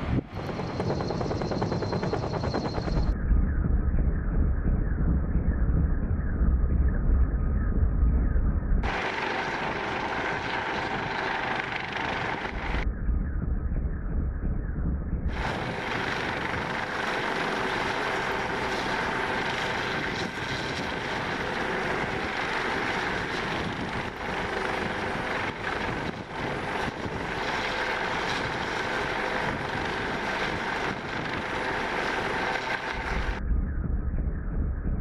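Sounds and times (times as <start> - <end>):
helicopter rotor and engine noise: 0.0 - 3.3, 8.8 - 12.9, 15.3 - 33.4
helicopter whine: 0.0 - 6.0, 8.8 - 13.0, 15.3 - 35.0.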